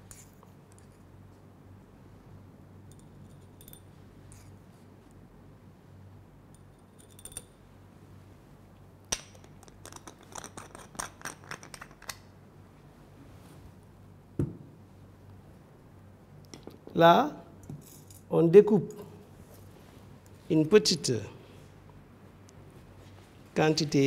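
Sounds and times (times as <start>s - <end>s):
jar thumping on table: 14.4s - 14.7s.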